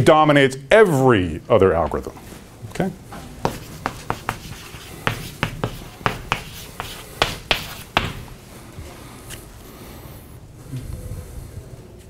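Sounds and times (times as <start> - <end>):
chalk tapping and scraping on chalkboard: 3.4 - 8.4.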